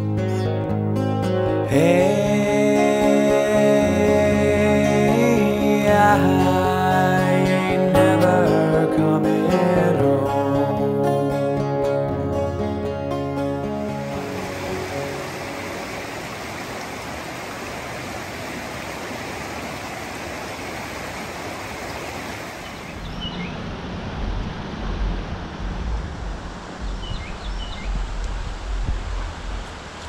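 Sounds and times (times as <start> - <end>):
rushing creek water: 13.5 - 23.6
low rumble: 23.0 - 30.0.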